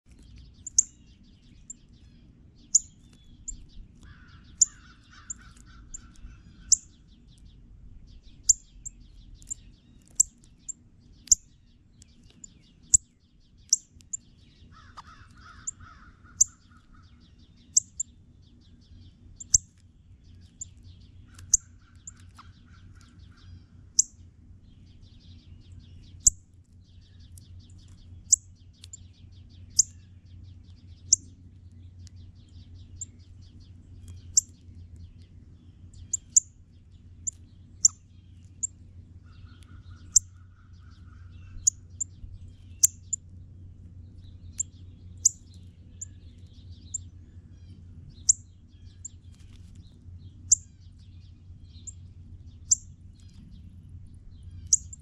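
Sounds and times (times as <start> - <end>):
bird chip calls: 0.1 - 36.5, 37.1 - 43.2, 44.2 - 53.7, 54.3 - 55.0
steady low hum: 0.1 - 55.0
rough grainy bird call: 1.6 - 7.3, 8.4 - 18.1, 20.4 - 24.2, 37.2 - 43.2.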